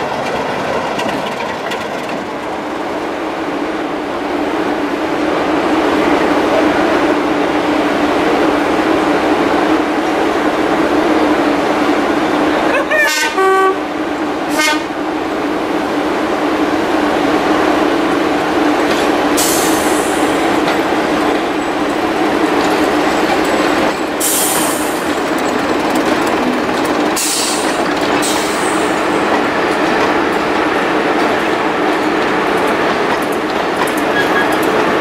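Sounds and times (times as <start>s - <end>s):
wheels rumbling on rails: 0.0s - 35.0s
diesel engines running: 19.4s - 30.0s.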